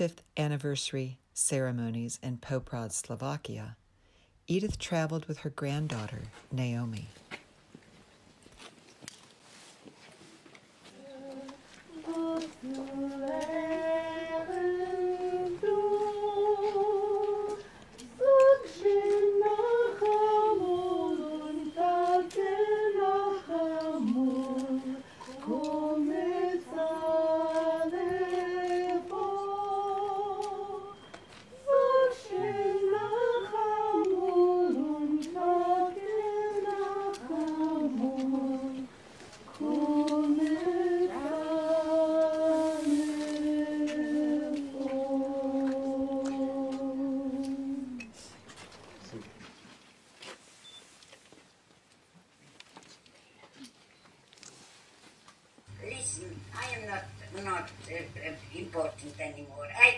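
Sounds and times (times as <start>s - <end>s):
singer breathing: 4.0s - 4.4s
person singing unaccompanied: 10.9s - 48.3s.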